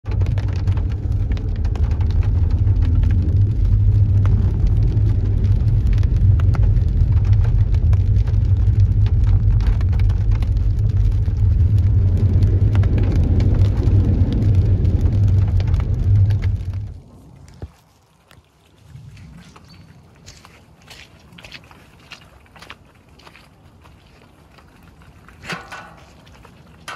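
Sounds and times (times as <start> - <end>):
car engine and tyres droning: 0.0 - 17.7
rain tapping on car roof: 0.0 - 17.8, 24.4 - 26.9.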